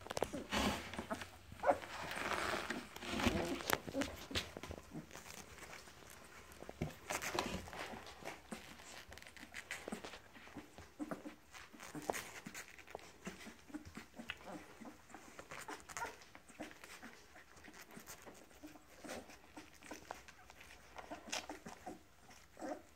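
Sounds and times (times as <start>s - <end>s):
bedding rustling: 0.0s - 14.6s
puppies whimpering and squeaking: 0.1s - 22.9s.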